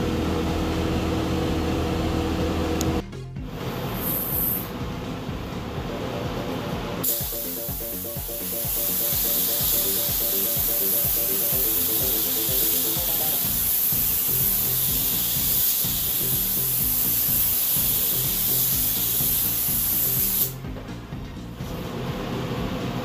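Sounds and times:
music with steady beat: 2.5 - 23.0
spray gun hissing: 7.0 - 20.6.

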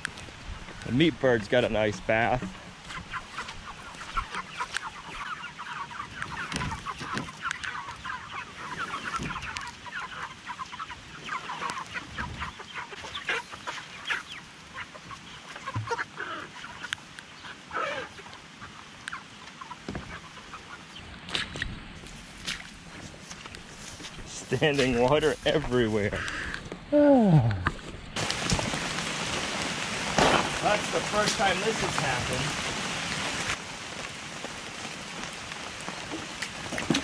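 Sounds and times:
chickens peeping and clucking: 0.0 - 37.0.

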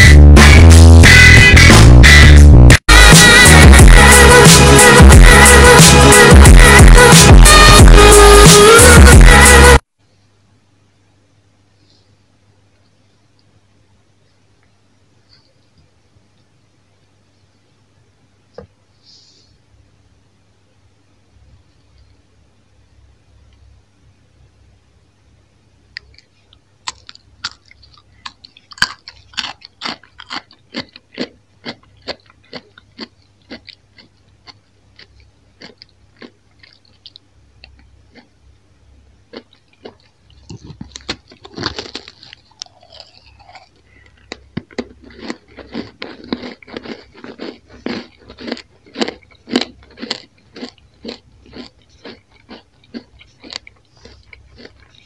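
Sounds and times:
crunching bites and chewing: 25.9 - 55.0.

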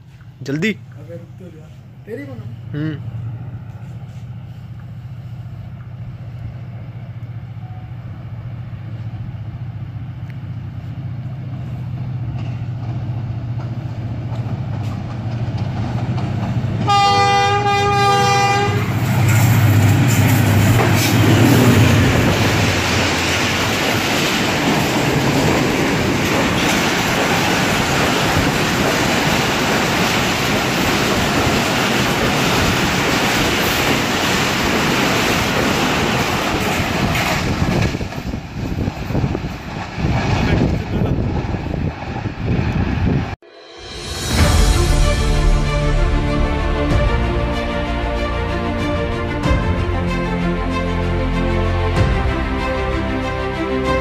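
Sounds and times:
train coaches rushing past: 0.0 - 54.0
locomotive engine drone: 0.1 - 28.5, 41.8 - 54.0
train horn blast: 16.8 - 19.8, 43.4 - 54.0.

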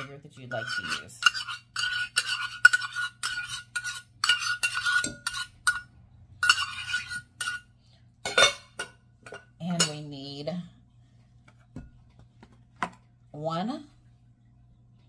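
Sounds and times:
metal spoon scraping a cup: 0.0 - 7.7.

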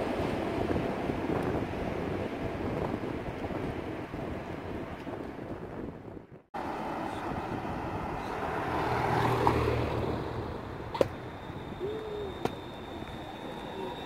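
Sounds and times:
car driving past: 6.6 - 11.8
faint high tone of tram: 6.6 - 14.0.

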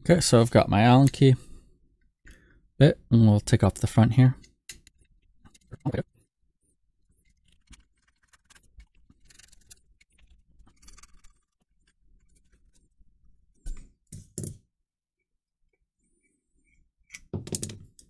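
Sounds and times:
hex bit clicking and scraping screws: 7.2 - 12.8.

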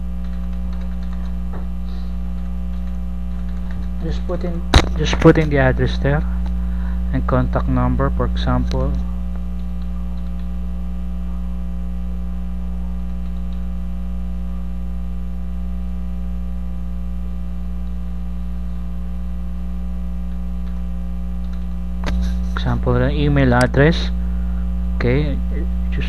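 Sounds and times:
electrical mains hum: 0.0 - 26.0
faint keyboard keystrokes: 0.2 - 1.4, 2.4 - 4.0.

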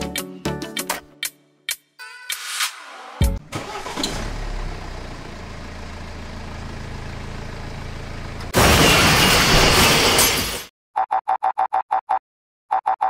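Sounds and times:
trailer crashing over: 8.5 - 10.7.

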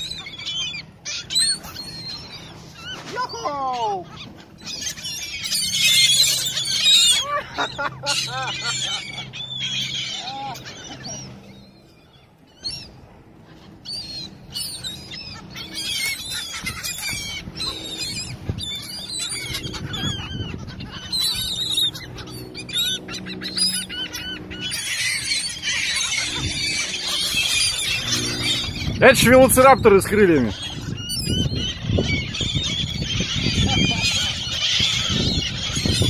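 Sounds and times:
gulls calling: 0.0 - 36.0.

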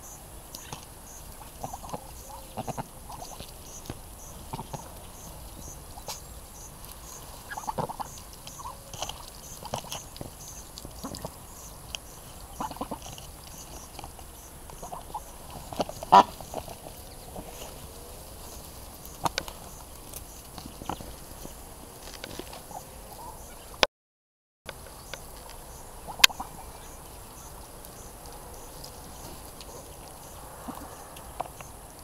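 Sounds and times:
ducks pecking: 0.0 - 23.8, 24.7 - 32.0
soft duck calls: 1.4 - 3.5, 7.4 - 10.0, 12.5 - 13.2, 14.8 - 17.8.

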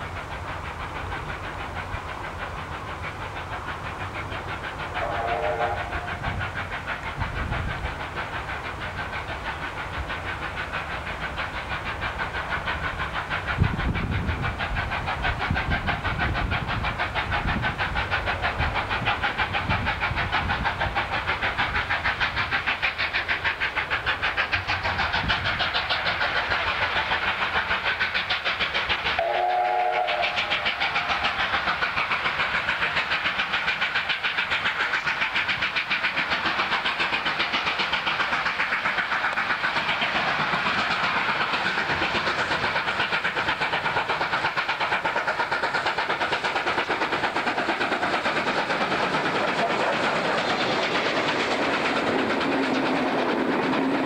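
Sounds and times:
steam locomotive exhaust beats: 0.0 - 54.0
steam whistle blast: 5.0 - 6.2, 29.2 - 31.0.

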